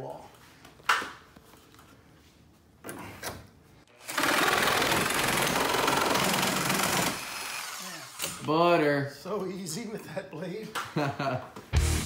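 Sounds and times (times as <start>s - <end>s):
reciprocating saw cutting wood: 3.9s - 8.4s.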